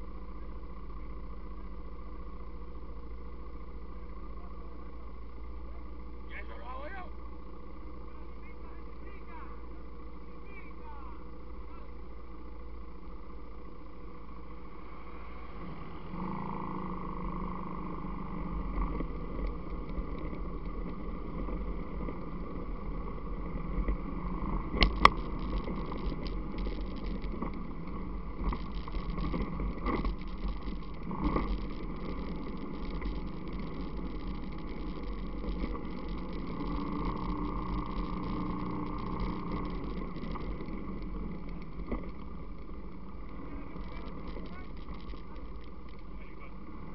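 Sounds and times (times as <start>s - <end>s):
atv engine running: 0.0s - 46.9s
knocks and clatters from rough ground: 24.7s - 46.1s.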